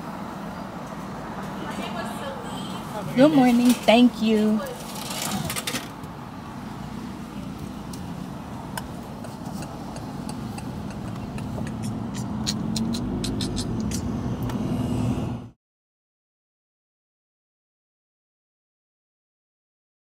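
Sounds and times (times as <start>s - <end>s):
car engine and road noise: 0.0s - 15.6s.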